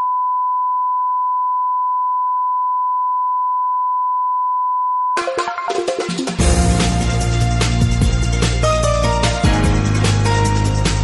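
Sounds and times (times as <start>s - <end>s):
music: 5.2s - 11.0s.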